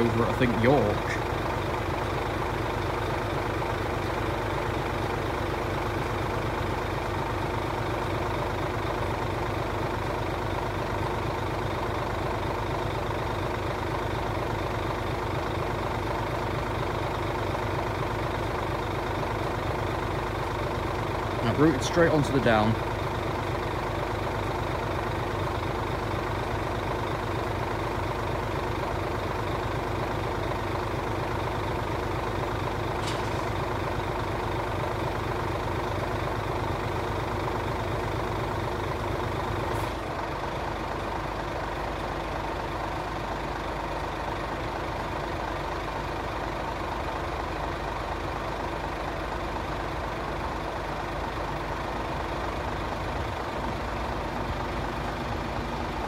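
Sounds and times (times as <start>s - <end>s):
diesel locomotive engine: 0.0s - 56.0s.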